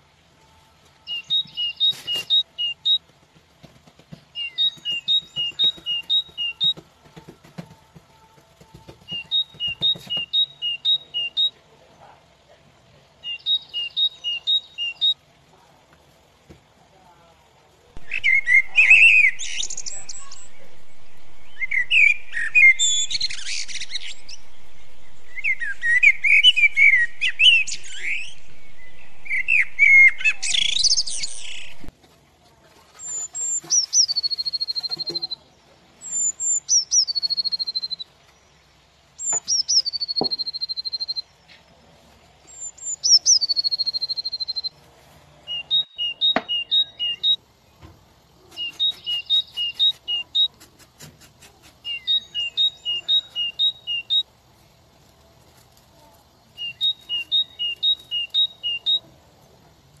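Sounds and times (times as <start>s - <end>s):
birds chirping: 1.0s - 3.2s, 3.9s - 7.2s, 8.1s - 12.2s, 13.1s - 15.2s, 17.9s - 31.9s, 33.0s - 44.8s, 45.4s - 50.6s, 51.5s - 60.0s
falling whistled calls: 18.0s - 31.9s, 36.0s - 38.1s, 39.2s - 41.3s, 42.5s - 44.7s, 45.5s - 47.4s, 51.8s - 54.3s, 56.6s - 59.0s.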